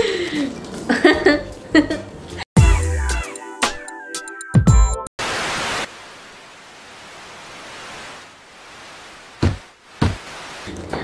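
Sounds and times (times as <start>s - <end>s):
television static hiss: 5.2s - 11.0s.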